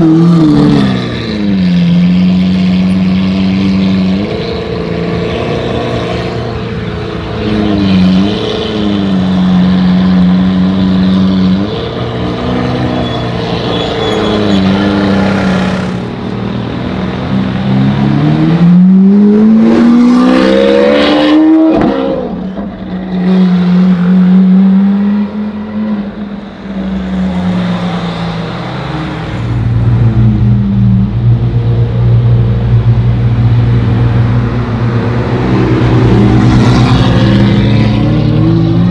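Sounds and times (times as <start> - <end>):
engine revving: 17.4 - 22.4.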